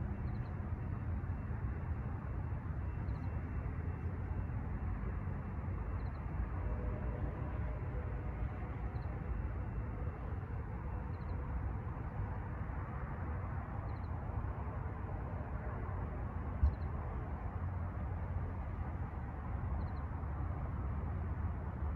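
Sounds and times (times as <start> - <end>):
low outdoor rumble: 0.0 - 21.9
faint high chirp: 5.9 - 6.3, 10.9 - 11.4.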